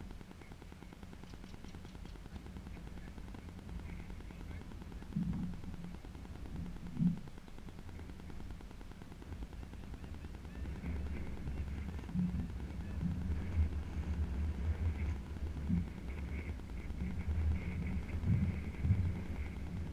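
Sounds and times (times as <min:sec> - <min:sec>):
wind buffeting microphone: 0:10.5 - 0:19.9.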